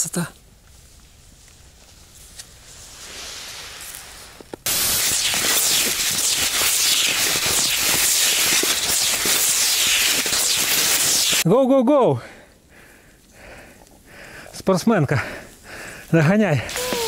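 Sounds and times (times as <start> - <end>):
skis gliding on snow: 1.6 - 11.4, 16.7 - 17.0.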